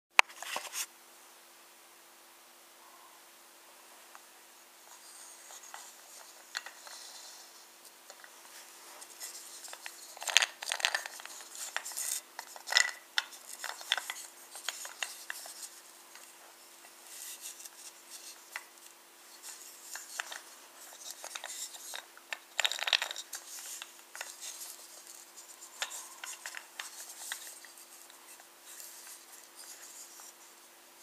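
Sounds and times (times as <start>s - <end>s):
wooden toy clicking and knocking: 9.2s - 16.3s, 19.4s - 27.9s.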